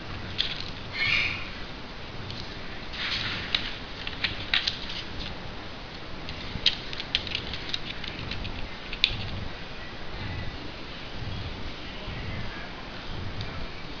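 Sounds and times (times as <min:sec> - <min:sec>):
background hiss: 0:00.0 - 0:14.0
foil paper crinkling and creasing: 0:02.4 - 0:05.4, 0:06.2 - 0:09.4.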